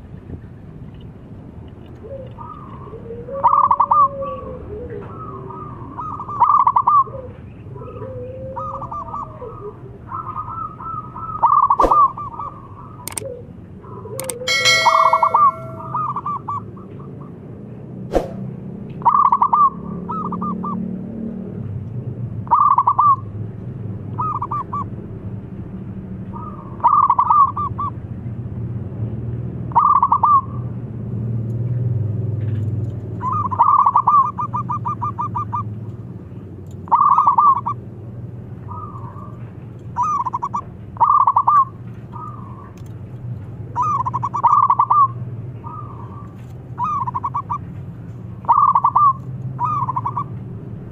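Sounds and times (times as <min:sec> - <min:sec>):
dove cooing: 0:02.0 - 0:16.3, 0:33.2 - 0:35.7, 0:36.9 - 0:37.8, 0:40.0 - 0:42.7, 0:43.8 - 0:47.6, 0:48.4 - 0:50.3
sharp click: 0:13.1 - 0:13.3, 0:14.2 - 0:15.7.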